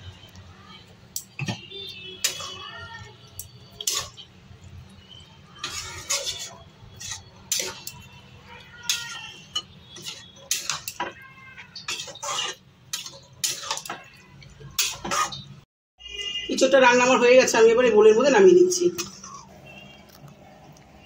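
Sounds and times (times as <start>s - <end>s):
spatula scraping metal pot: 2.2s - 2.6s, 3.8s - 4.3s, 5.6s - 14.2s, 14.8s - 15.5s.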